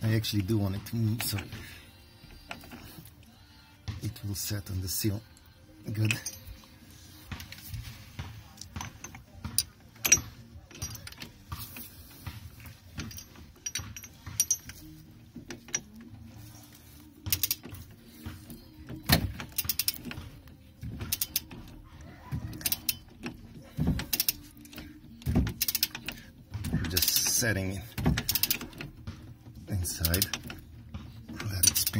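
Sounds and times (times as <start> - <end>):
ratchet clinking and clicking: 5.9 - 6.7, 8.6 - 16.1, 16.7 - 21.8, 22.5 - 29.1, 29.8 - 31.9.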